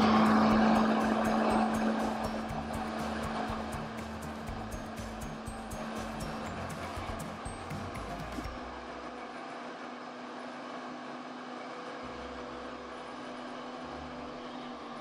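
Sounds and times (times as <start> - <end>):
blender motor running: 0.0 - 7.8.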